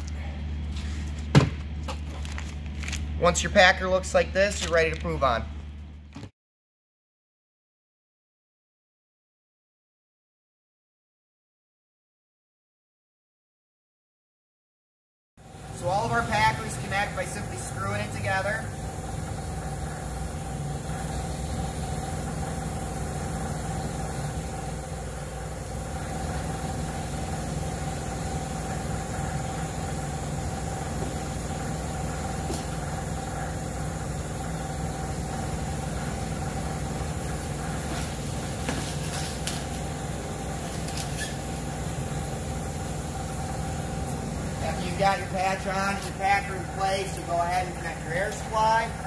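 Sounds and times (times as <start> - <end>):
machine hum: 15.4 - 49.0.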